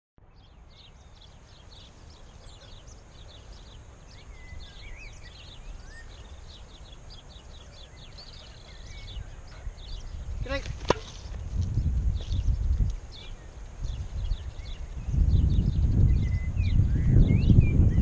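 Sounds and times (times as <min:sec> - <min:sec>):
birds singing and chirping: 0:00.2 - 0:18.0
high whistled bird notes: 0:00.4 - 0:11.4
steady low rumble: 0:11.2 - 0:18.0.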